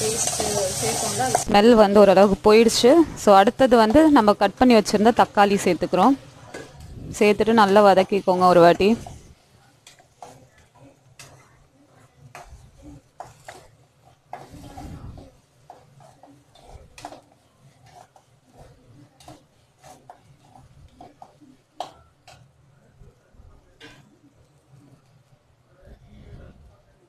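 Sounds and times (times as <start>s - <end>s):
onions and tomatoes sauteing: 0.0s - 22.7s
metal spatula scraping a pan: 7.4s - 11.6s, 12.3s - 22.4s.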